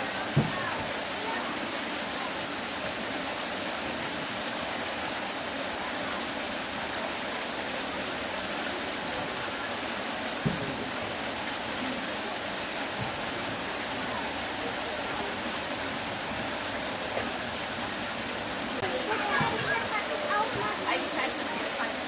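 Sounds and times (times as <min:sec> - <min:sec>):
running water rushing: 0:00.0 - 0:22.0
short thump: 0:00.4 - 0:00.7, 0:10.4 - 0:10.9.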